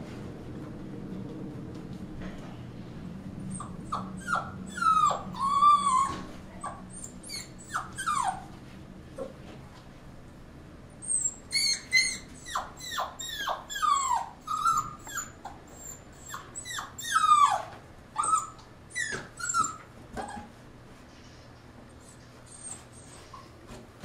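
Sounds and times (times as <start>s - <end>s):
puppy whimpering: 3.5s - 8.6s, 11.0s - 20.6s, 22.0s - 23.6s.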